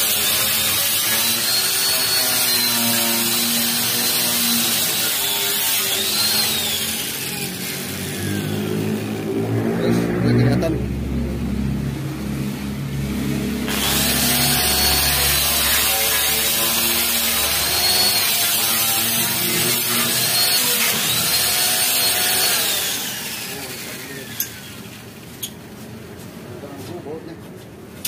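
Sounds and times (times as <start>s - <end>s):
wire brush grinder scouring metal: 0.0s - 9.4s, 13.7s - 25.5s.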